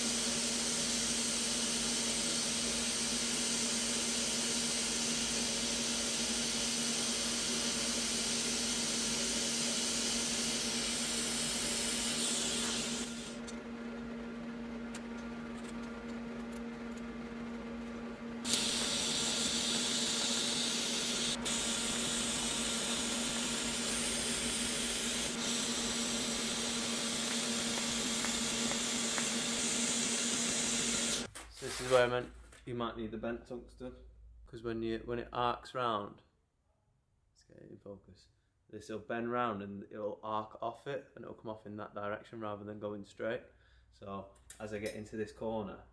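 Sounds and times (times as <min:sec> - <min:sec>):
welding arc hissing: 0:00.0 - 0:13.4, 0:18.4 - 0:31.3.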